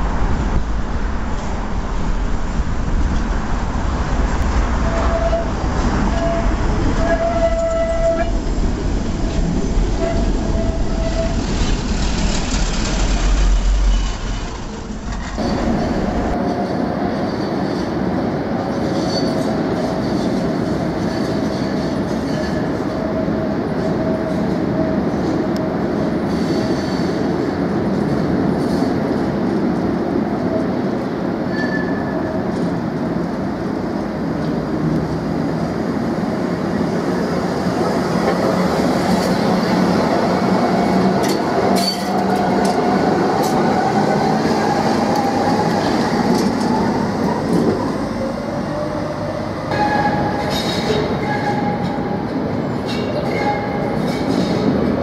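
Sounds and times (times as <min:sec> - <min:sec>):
tram wheels rumbling over rails: 0:00.0 - 0:55.0
tram wheels squealing: 0:04.7 - 0:18.0, 0:18.7 - 0:27.4, 0:31.5 - 0:32.8, 0:37.8 - 0:55.0.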